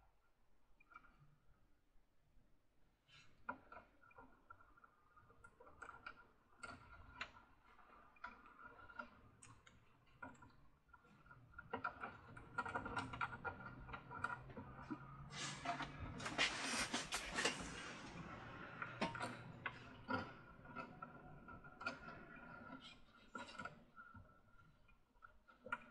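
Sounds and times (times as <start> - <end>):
plastic parts clicking and tapping: 8.2 - 16.4.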